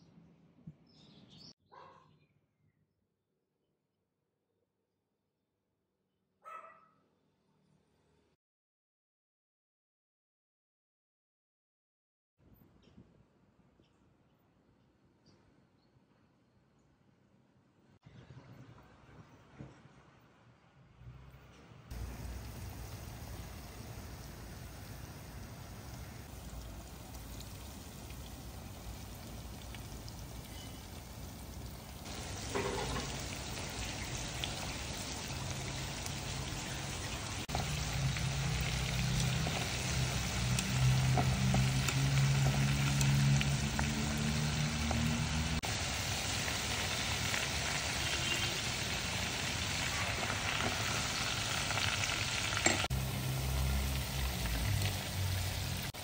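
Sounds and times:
meat deep-frying in oil: 0:21.9 - 0:56.0.

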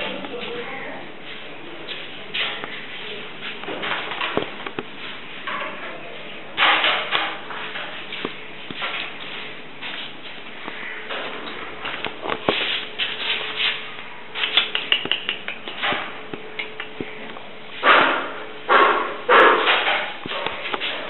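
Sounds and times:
dog claws clicking on floor: 0:14.4 - 0:17.4
loud dog sounds: 0:17.8 - 0:19.9.

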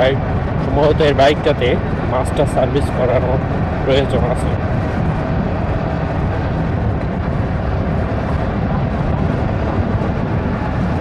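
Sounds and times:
wind rush on microphone: 0:00.0 - 0:11.0
motorcycle engine running: 0:03.4 - 0:11.0.

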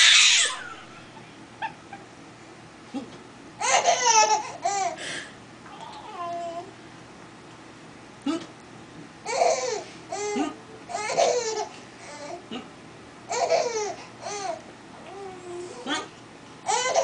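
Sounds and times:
baby laughing: 0:03.6 - 0:05.0, 0:09.3 - 0:12.4, 0:13.3 - 0:14.6, 0:16.6 - 0:17.0.

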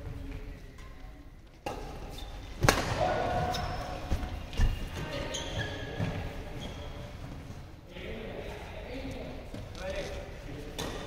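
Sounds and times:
shoes squeaking on court: 0:01.8 - 0:02.6, 0:03.3 - 0:07.5
racket hitting shuttlecock: 0:02.6 - 0:03.6.

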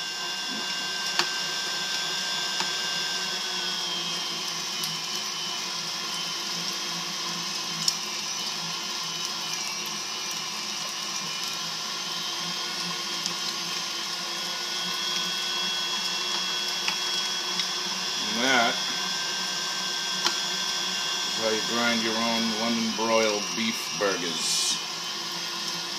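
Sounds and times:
mixer motor hum: 0:00.0 - 0:25.9.

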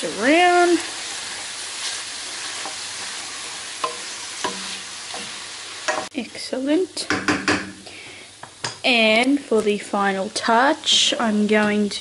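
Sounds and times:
food sizzling in a frying pan: 0:00.0 - 0:12.0
utensil tapping a pan: 0:03.8 - 0:05.3, 0:07.0 - 0:07.8.

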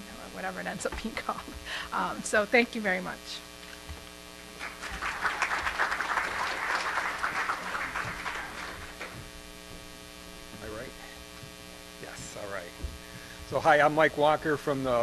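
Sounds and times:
electrical hum: 0:00.0 - 0:15.0
audience applauding: 0:04.6 - 0:09.2.

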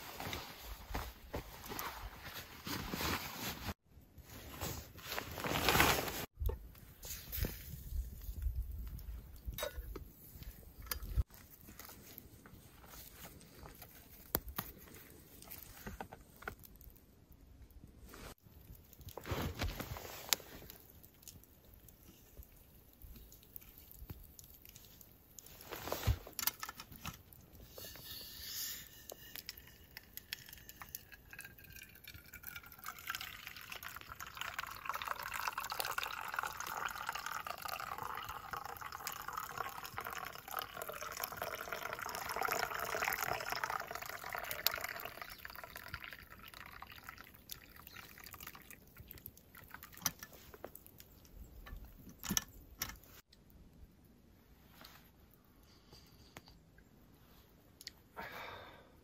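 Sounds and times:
liquid pouring into metal cup: 0:29.4 - 0:50.4.

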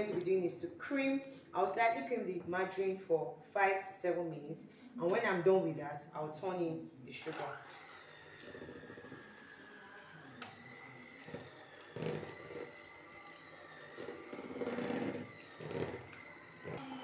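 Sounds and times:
electric hand mixer whining: 0:07.2 - 0:17.0.

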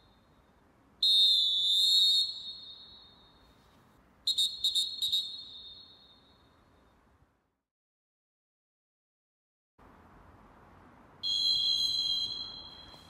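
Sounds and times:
referee whistle blasts: 0:01.0 - 0:03.5, 0:04.3 - 0:06.5, 0:11.2 - 0:13.0.

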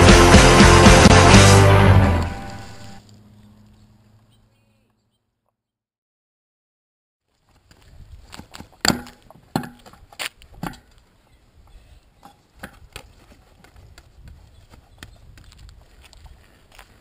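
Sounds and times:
unicycle wheel landing knocks: 0:08.8 - 0:10.0, 0:10.6 - 0:10.9.

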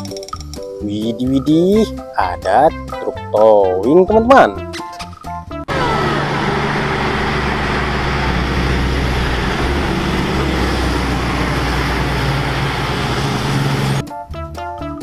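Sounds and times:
diesel truck engine hum: 0:05.7 - 0:14.0
tyre and road noise: 0:05.7 - 0:14.0.

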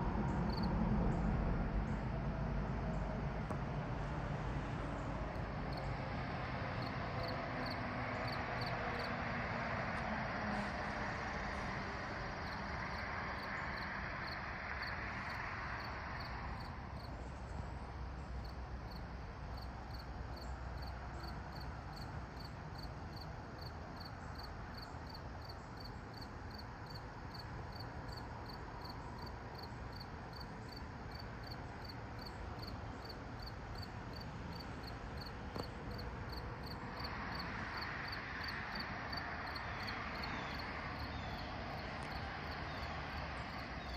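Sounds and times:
passing vehicle hiss: 0:00.0 - 0:43.9
insects chirping: 0:00.5 - 0:00.7, 0:06.7 - 0:09.2, 0:12.4 - 0:43.9.

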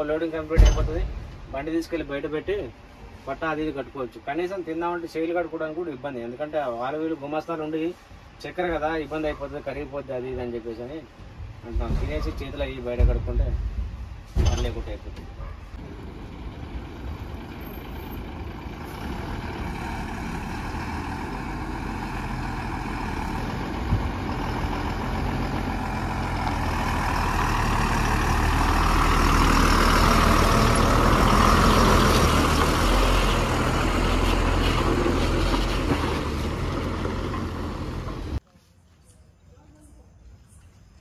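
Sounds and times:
lorry diesel engine passing: 0:15.8 - 0:38.4.

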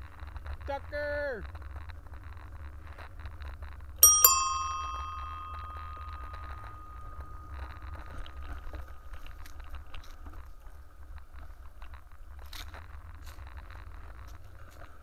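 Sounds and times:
bicycle bell ringing: 0:04.0 - 0:08.9
bicycle tyres clicking and crunching: 0:09.1 - 0:15.0.

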